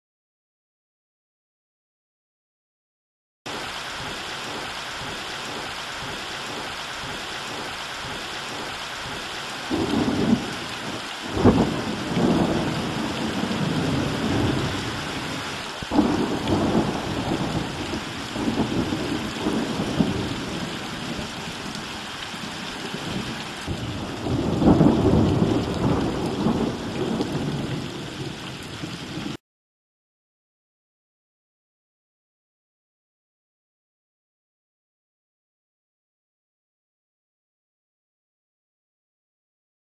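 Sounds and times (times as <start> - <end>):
rain hissing: 3.5 - 29.4
thunder rolls and cracks: 3.5 - 29.4.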